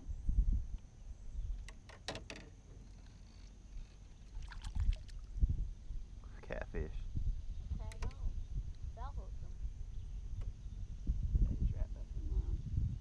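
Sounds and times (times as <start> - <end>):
low rumble of boat: 0.0 - 13.0
fish splashing at water surface: 4.3 - 5.3.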